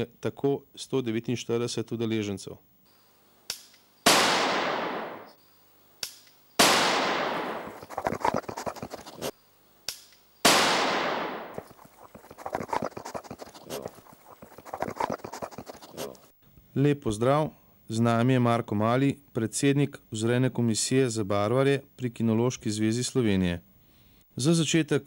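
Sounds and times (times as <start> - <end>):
gunshots with rolling echo: 4.0 - 5.4, 6.6 - 7.8, 10.4 - 11.6.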